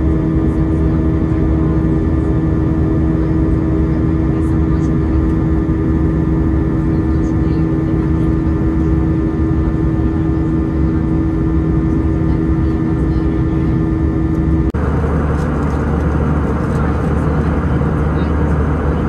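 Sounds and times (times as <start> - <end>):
jet engine and airflow noise: 0.0 - 19.0
strong steady hum: 0.0 - 19.0.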